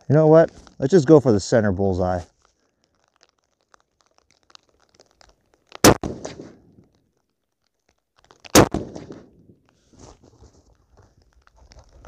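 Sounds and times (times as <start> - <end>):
rifle shot: 5.8 - 6.7, 8.5 - 9.4.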